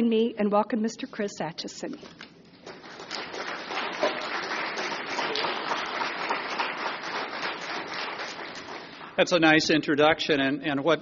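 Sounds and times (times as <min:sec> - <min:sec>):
audience applauding: 0:02.6 - 0:09.4.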